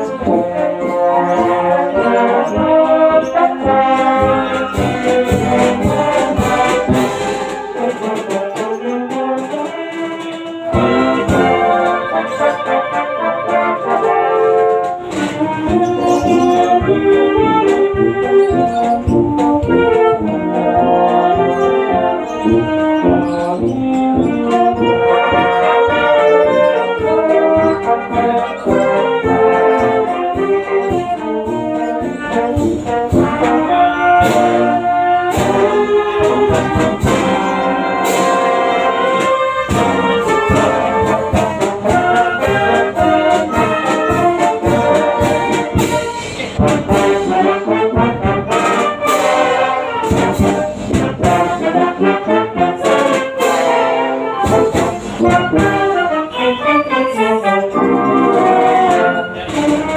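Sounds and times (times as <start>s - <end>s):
sharp percussion strikes: 0.0s - 13.1s
brass band playing: 0.0s - 59.9s.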